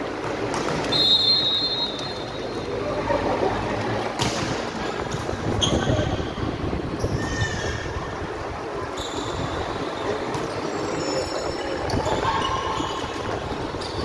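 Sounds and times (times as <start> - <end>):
hubbub of people in hall: 0.0 - 14.0
volleyball hits with echo: 4.2 - 5.3.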